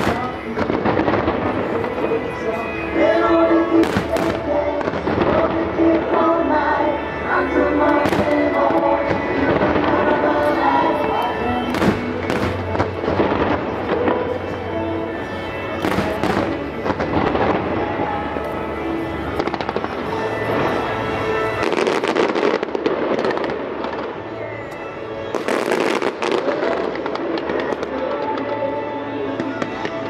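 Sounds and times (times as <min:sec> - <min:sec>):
crackling firework bangs: 0:00.0 - 0:02.0, 0:11.7 - 0:14.3
fireworks bangs: 0:00.0 - 0:30.0
music playing: 0:00.0 - 0:30.0.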